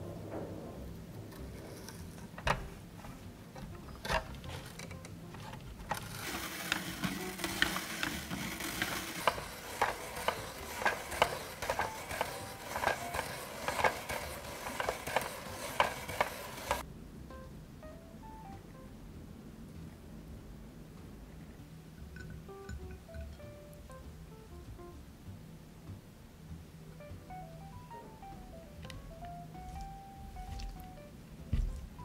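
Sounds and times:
spiralizer rasping and clicking: 1.7s - 16.8s.

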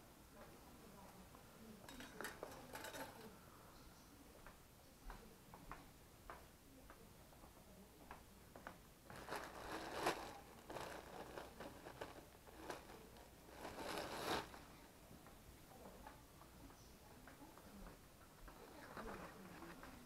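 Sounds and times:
crinkling handling noises: 8.6s - 15.0s, 18.5s - 20.0s.

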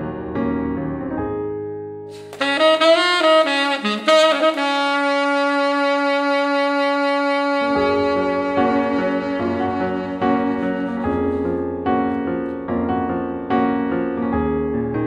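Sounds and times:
piano chords: 0.0s - 15.0s
tenor saxophone playing: 2.2s - 11.8s.

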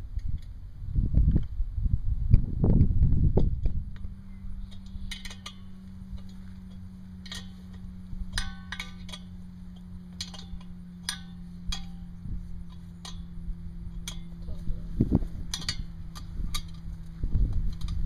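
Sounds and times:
vibrator head humming: 0.0s - 18.0s
sharp metallic clinks: 4.2s - 14.7s.

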